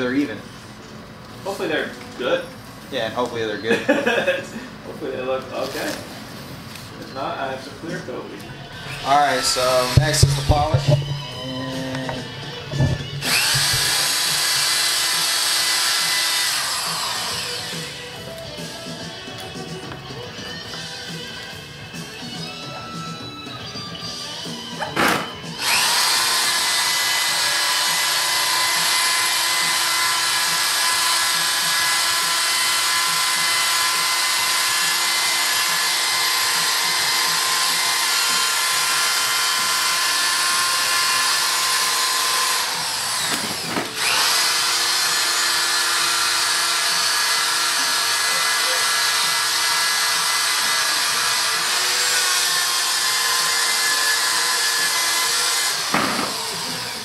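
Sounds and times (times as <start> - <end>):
power drill motor whine: 8.5 - 18.7, 25.4 - 57.0.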